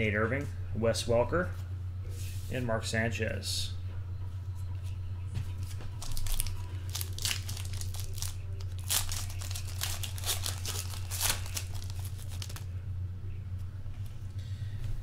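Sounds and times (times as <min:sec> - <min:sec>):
steady low hum: 0:00.0 - 0:15.0
foil wrapper tearing and crinkling: 0:06.0 - 0:12.7.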